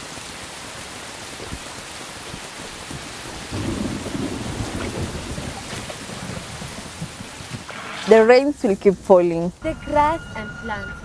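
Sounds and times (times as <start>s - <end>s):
heavy rain falling: 0.0s - 9.6s
low rumble of thunder: 3.2s - 7.7s.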